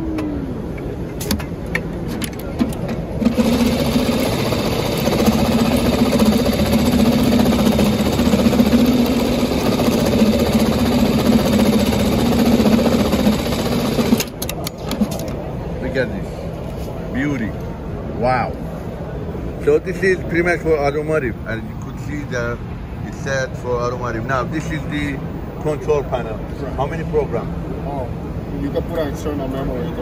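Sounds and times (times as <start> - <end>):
industrial sewing machine stitching: 3.2 - 14.4.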